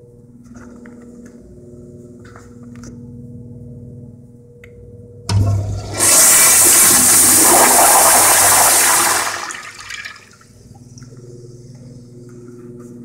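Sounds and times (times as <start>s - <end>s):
toilet flushing: 5.3s - 10.4s.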